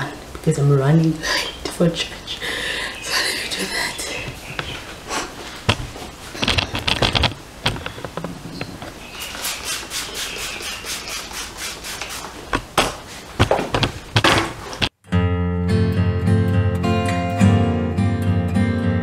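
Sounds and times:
spray bottle hissing sprays: 9.2 - 12.5
guitar music: 15.0 - 19.0.

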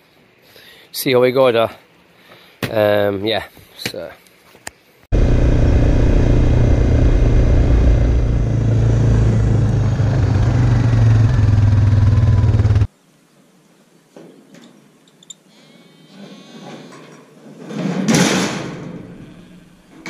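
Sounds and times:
quad bike engine running: 5.2 - 12.9.

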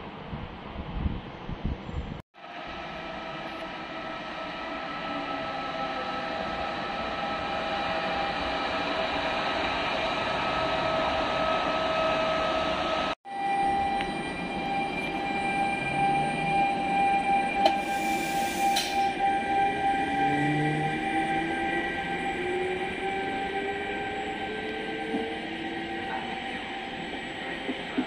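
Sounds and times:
electric locomotive whine: 2.4 - 28.0
train rolling past: 2.4 - 28.0.

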